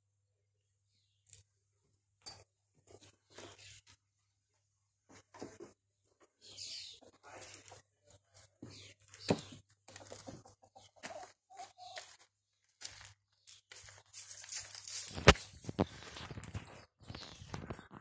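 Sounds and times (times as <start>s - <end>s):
footsteps in dry leaves: 11.8s - 16.5s.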